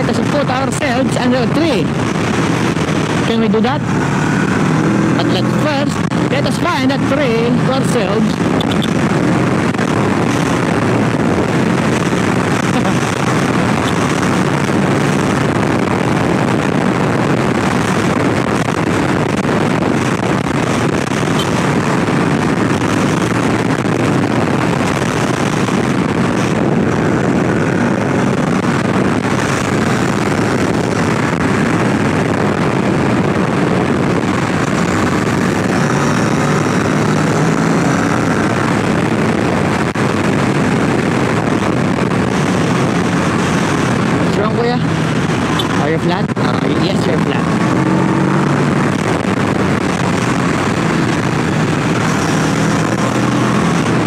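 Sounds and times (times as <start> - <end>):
motorcycle engine cruising: 0.0 - 54.0
wind rushing on microphone: 0.0 - 54.0.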